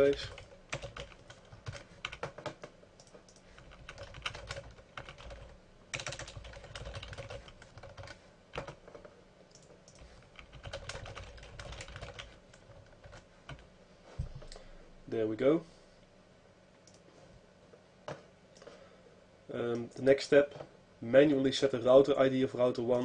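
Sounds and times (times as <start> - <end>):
keyboard typing: 0.0 - 13.6.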